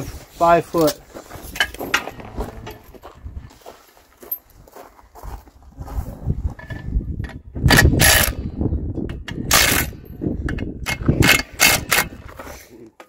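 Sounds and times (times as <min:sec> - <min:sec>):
impact wrench rattling: 0:06.6 - 0:08.4, 0:09.0 - 0:12.3.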